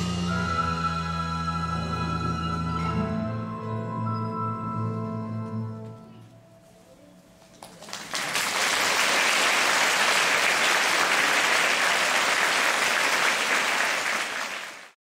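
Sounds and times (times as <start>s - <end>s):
large audience applauding: 7.6s - 15.0s.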